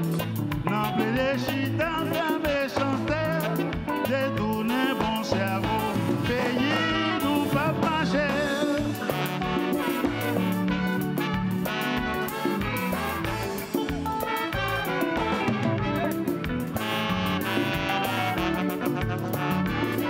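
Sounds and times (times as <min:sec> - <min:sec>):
bass line: 0:00.0 - 0:20.0
percussion: 0:00.0 - 0:20.0
man singing: 0:00.6 - 0:09.5
horn section: 0:04.4 - 0:20.0.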